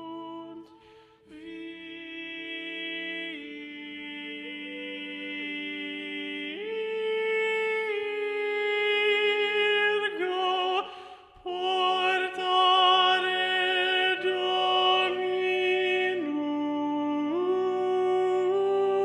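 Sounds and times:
choir singing sustained chords: 0.0 - 19.0.

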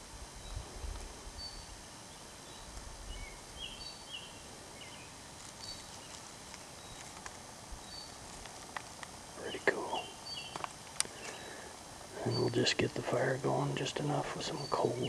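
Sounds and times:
bird chirping: 1.4 - 7.1, 9.4 - 11.6, 12.2 - 15.0
faint clicks: 10.5 - 11.4.

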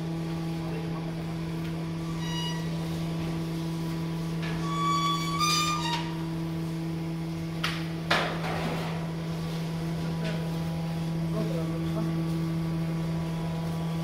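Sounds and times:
low machine hum: 0.0 - 14.0
high two-note squeal: 2.0 - 3.0, 4.6 - 6.2.

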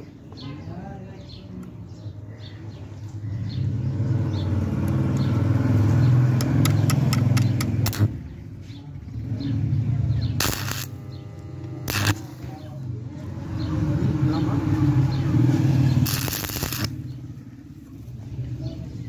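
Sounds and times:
low engine hum: 3.2 - 19.0
sharp click: 6.4 - 8.2
rapid clicks: 16.0 - 17.0.

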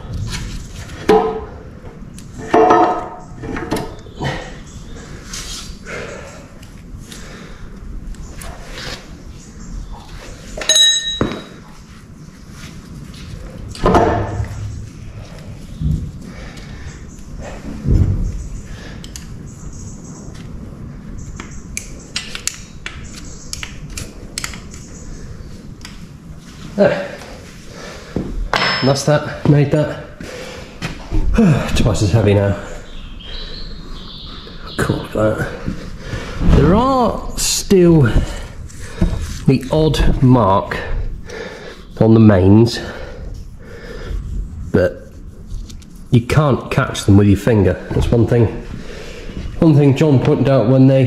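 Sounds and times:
low background rumble: 12.0 - 21.2.

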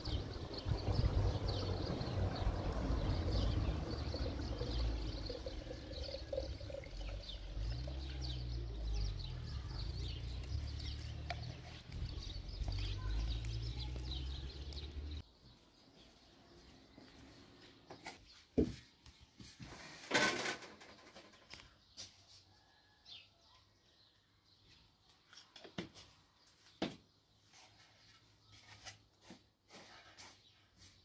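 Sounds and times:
water pouring into plastic jug: 0.0 - 15.2
small birds chirping: 0.0 - 19.4.

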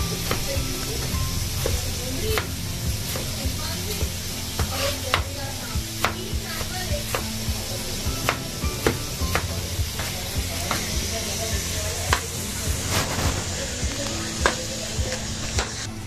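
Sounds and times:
steady hiss: 0.0 - 16.0
knife chopping on cutting board: 6.0 - 7.3, 8.2 - 10.9.

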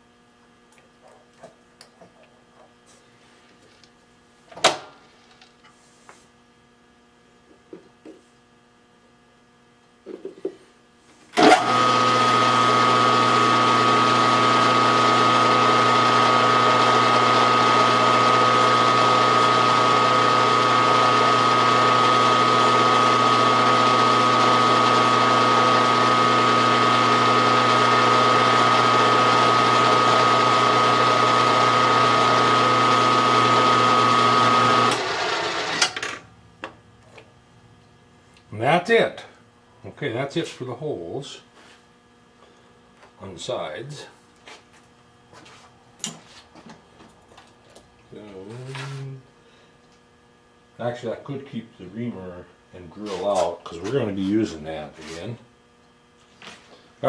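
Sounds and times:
drill press whining: 11.3 - 36.2.

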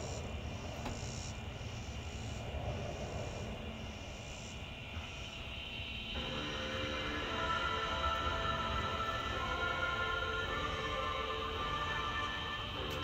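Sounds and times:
music: 6.1 - 13.0.

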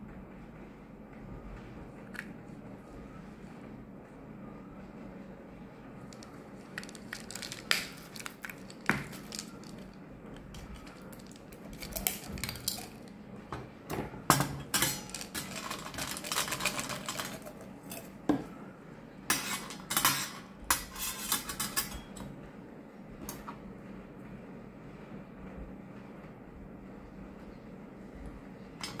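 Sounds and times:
capsules rattling onto steel tray: 6.1 - 13.1, 14.7 - 18.0.

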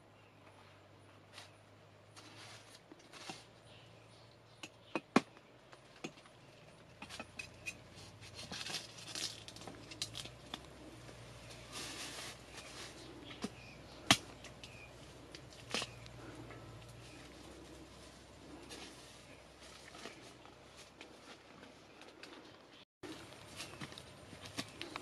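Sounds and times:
bamboo leaves rustling and crackling: 1.3 - 3.6, 6.5 - 25.0
twigs snapping: 8.5 - 10.7.

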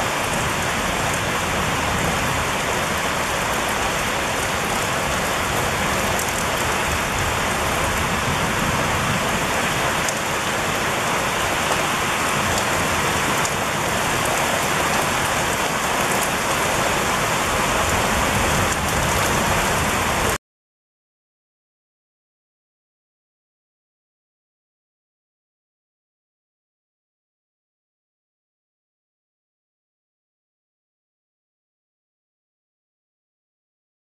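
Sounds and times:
heavy rain pouring: 0.0 - 20.4.

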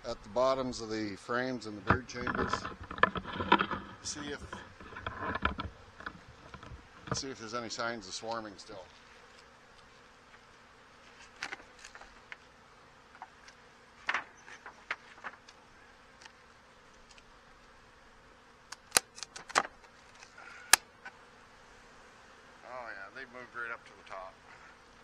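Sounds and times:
honeybees buzzing: 0.0 - 25.0
hive tool knocking on wood: 1.8 - 7.3.

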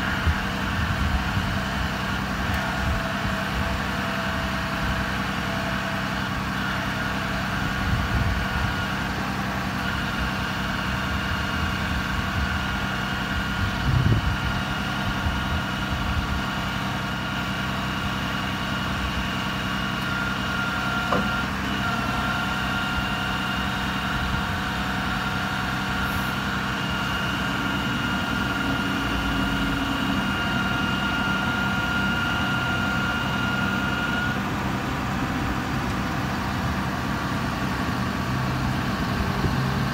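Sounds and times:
diesel truck engine idling: 0.0 - 39.9
hydraulic high whine: 0.0 - 39.9.

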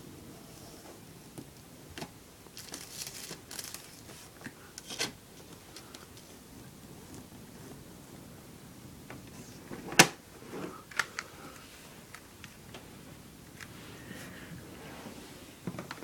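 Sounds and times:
plastic sleeve crinkling: 2.5 - 5.1.

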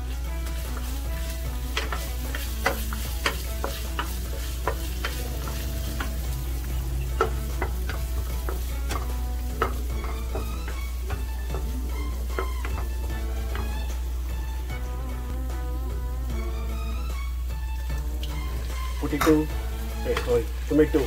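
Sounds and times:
leaves sizzling in hot oil: 0.0 - 21.0
spatula stirring in pan: 0.0 - 21.0
sharp taps and pops: 1.5 - 13.9.

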